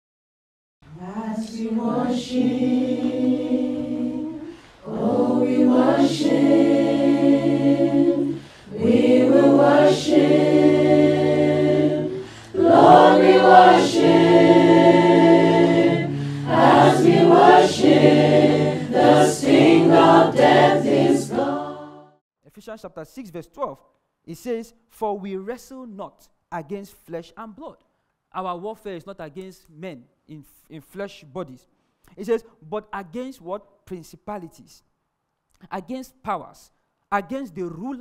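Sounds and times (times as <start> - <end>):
group singing a cappella: 0.9 - 22.2.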